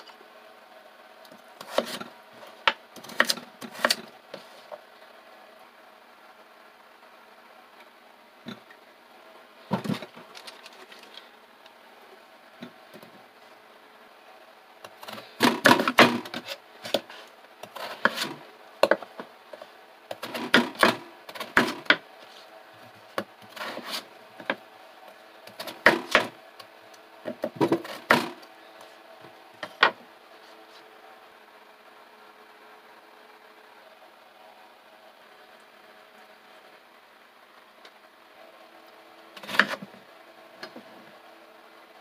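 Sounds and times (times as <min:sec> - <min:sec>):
knife chopping on wooden board: 0:01.6 - 0:02.1, 0:15.1 - 0:17.1, 0:20.1 - 0:22.0, 0:25.5 - 0:26.3.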